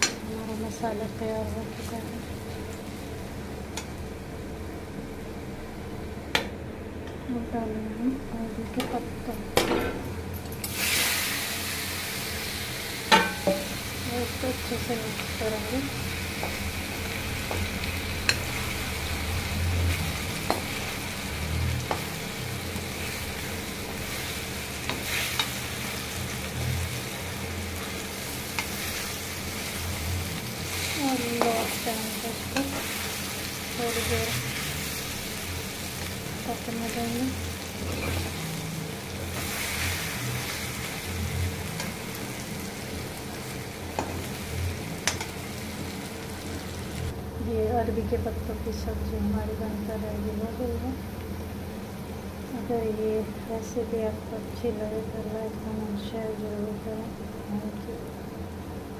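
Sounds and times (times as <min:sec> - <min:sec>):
food sizzling in oil: 0:00.0 - 0:05.4, 0:08.5 - 0:48.1
spatula tapping pan: 0:20.4 - 0:20.8, 0:45.0 - 0:45.3.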